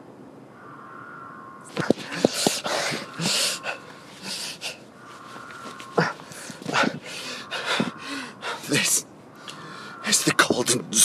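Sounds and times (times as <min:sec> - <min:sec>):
man breathing hard: 0:01.7 - 0:08.8, 0:09.4 - 0:10.1.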